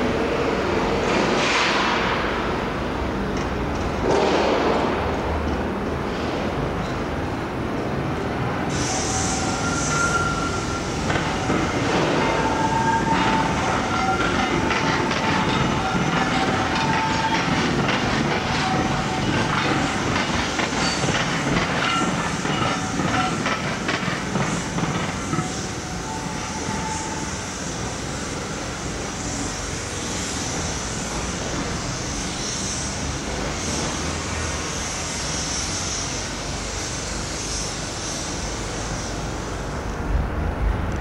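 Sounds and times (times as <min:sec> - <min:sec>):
train rumble with hiss: 0:00.0 - 0:41.0
wheel squeals: 0:08.9 - 0:27.3
train wheels clattering over joints: 0:10.9 - 0:26.7.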